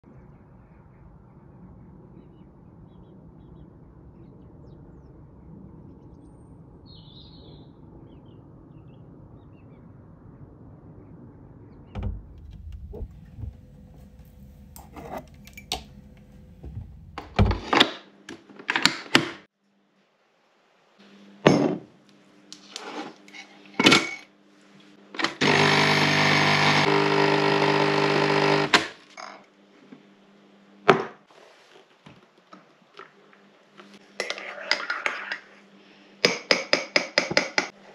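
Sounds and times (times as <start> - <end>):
outdoor background noise: 0.0 - 37.9
small electric appliance humming: 12.0 - 17.6, 25.3 - 29.0.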